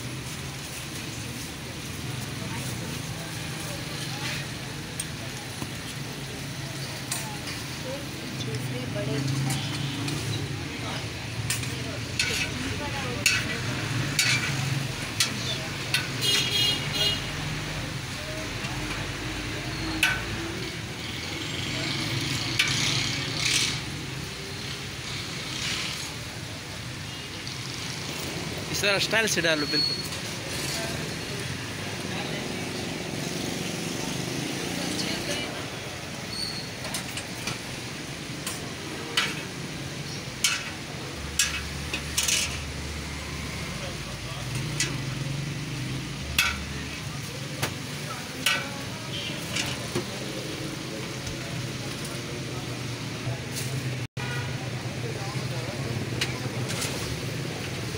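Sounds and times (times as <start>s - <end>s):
chicken sizzling on a griddle: 0.0s - 28.7s, 29.9s - 57.9s
roadside traffic: 0.0s - 57.9s
metal spatula clicking on griddle: 13.2s - 13.5s, 14.1s - 14.6s, 20.0s - 20.3s, 39.2s - 39.5s, 40.4s - 40.7s, 41.3s - 42.7s, 46.2s - 46.7s, 48.4s - 48.8s.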